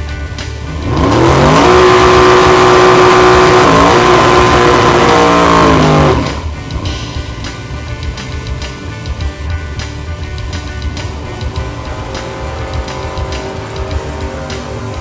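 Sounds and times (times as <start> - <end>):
music: 0.0 - 15.0
car engine revving hard: 0.6 - 7.2, 11.4 - 15.0.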